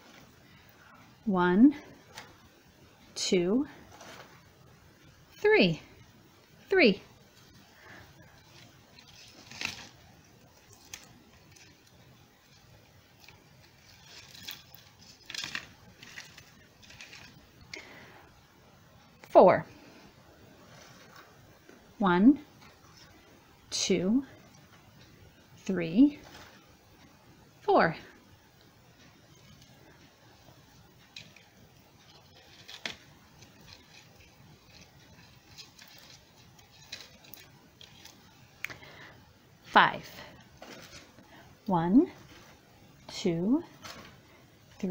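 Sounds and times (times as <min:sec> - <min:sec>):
twigs and plastic ribbon rustling: 0:01.7 - 0:18.5, 0:19.2 - 0:23.6, 0:24.2 - 0:39.3, 0:40.1 - 0:44.9.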